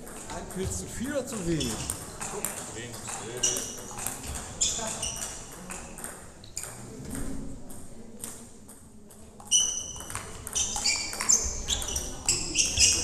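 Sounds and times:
table tennis ball clicks: 0:01.6 - 0:12.4.

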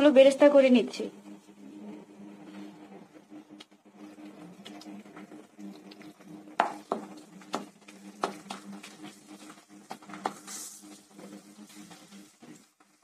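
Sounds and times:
frying sizzle: 0:03.4 - 0:13.0
spatula knocking and scraping pan: 0:06.6 - 0:08.8.

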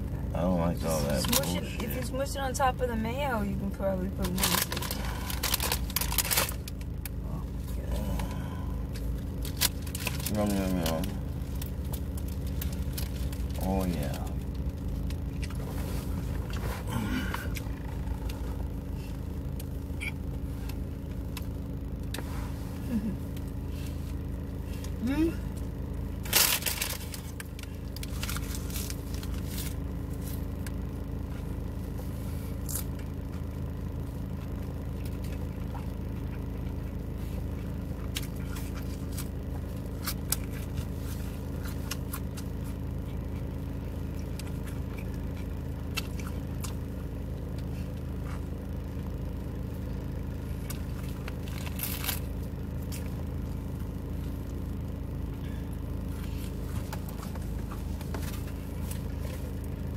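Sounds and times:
low hum inside a car: 0:00.0 - 0:59.9
chewing crusty bread sandwich: 0:04.3 - 0:22.2, 0:32.5 - 0:54.9.

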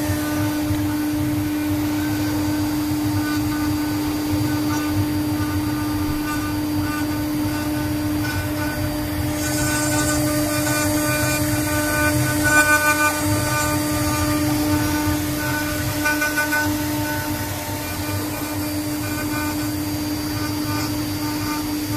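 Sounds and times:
bit cutting wood hiss: 0:00.0 - 0:21.9
router spindle whining: 0:00.0 - 0:21.9.

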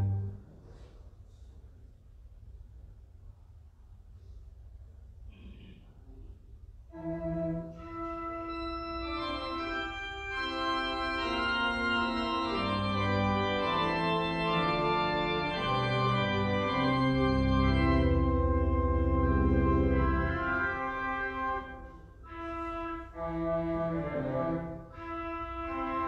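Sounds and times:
church organ chords: 0:07.8 - 0:26.0.

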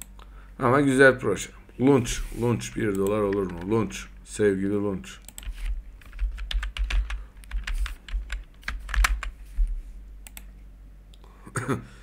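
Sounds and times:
typing on computer keyboard: 0:05.3 - 0:09.3.

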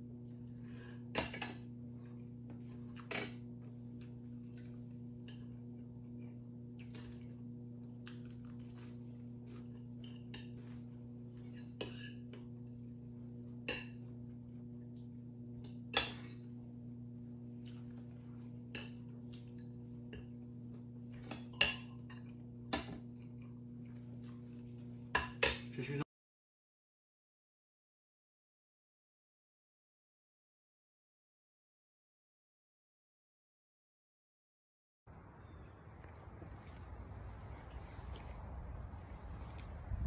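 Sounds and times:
low electrical hum: 0:00.0 - 0:26.1, 0:35.1 - 0:40.0.

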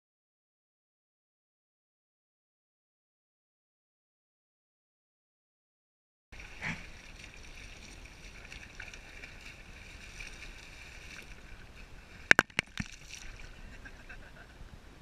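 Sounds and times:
small waves lapping: 0:06.4 - 0:14.8.

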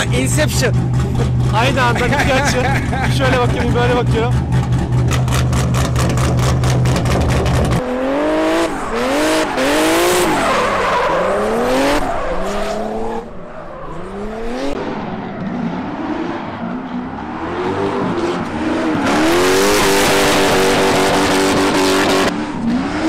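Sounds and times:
car engine revving: 0:00.0 - 0:23.0
low pulsing rumble: 0:00.5 - 0:07.8.

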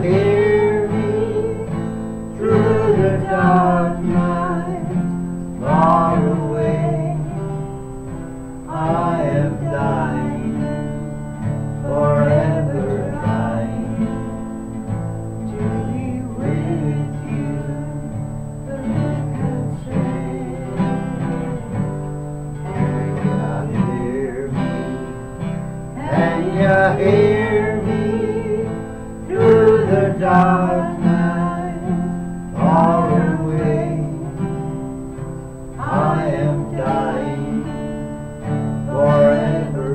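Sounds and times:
man and woman singing: 0:00.0 - 0:25.2, 0:25.9 - 0:39.9
acoustic guitar: 0:00.0 - 0:39.9.

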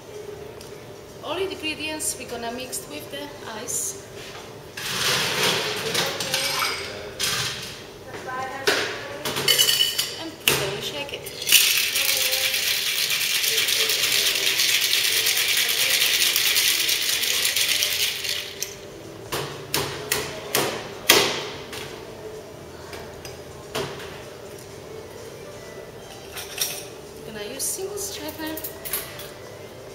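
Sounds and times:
ice rattling in cocktail shaker: 0:11.3 - 0:18.8.

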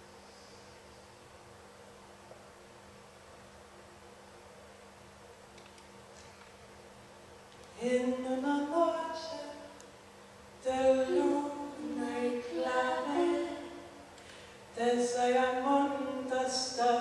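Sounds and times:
women singing a cappella: 0:07.8 - 0:09.8, 0:10.6 - 0:17.0.

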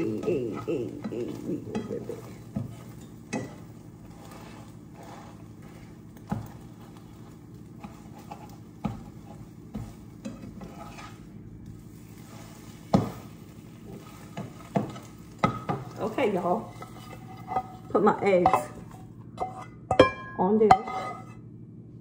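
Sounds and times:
utensil scraping and knocking pan: 0:00.0 - 0:11.3, 0:12.1 - 0:21.4
steady low hum: 0:00.0 - 0:22.0.

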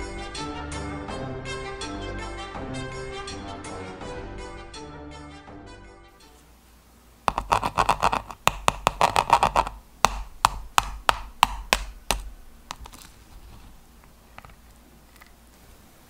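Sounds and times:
spoon tapping sugar crust: 0:07.3 - 0:13.3.

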